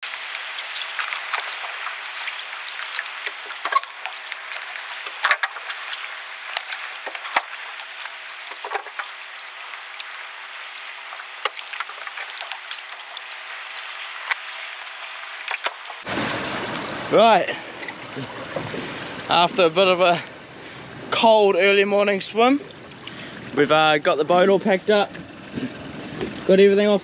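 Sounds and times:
water lapping among rocks: 0.1 - 16.0.

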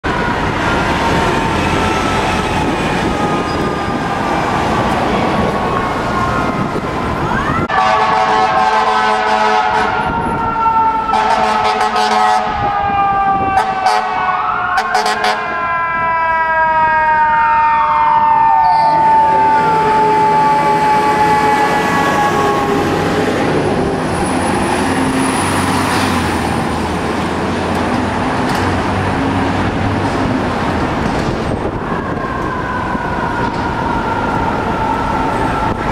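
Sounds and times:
city traffic: 0.0 - 35.9
fire engine sirens: 0.0 - 35.9
horn blasts: 7.7 - 10.3, 11.1 - 12.7, 13.4 - 15.6.

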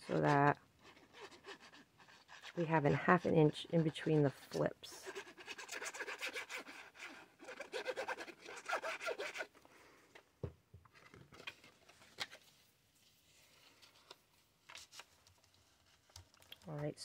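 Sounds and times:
glue nozzle scratching cardstock: 3.6 - 9.5
paper handling: 13.4 - 16.8.

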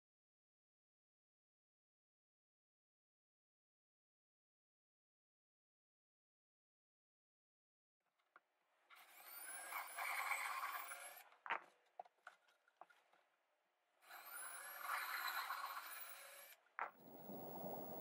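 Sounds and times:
power drill boring through plywood: 9.0 - 11.2, 14.0 - 18.0.

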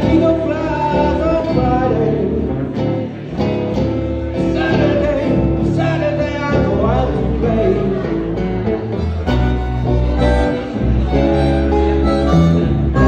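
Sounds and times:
man singing into a microphone: 0.0 - 3.2, 4.3 - 8.6
acoustic guitar: 0.0 - 13.0.

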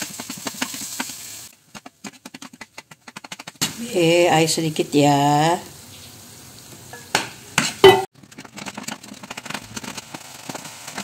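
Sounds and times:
spatula stirring in pan: 0.0 - 4.5, 7.5 - 11.0
spice paste sizzling in oil: 0.0 - 11.0.

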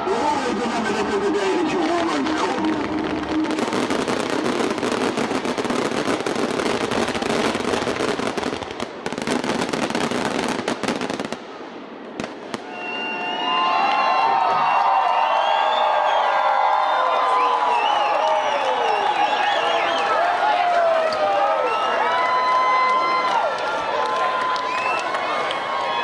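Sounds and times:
fireworks crackling and banging: 0.1 - 13.1.

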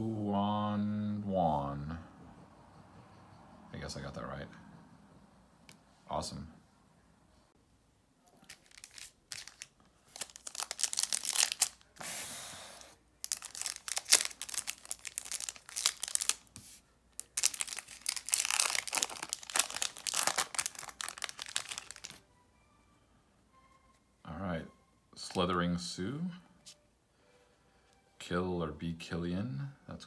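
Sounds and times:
foil wrapper tearing and crinkling: 8.4 - 11.9, 13.2 - 16.5, 17.2 - 22.2.

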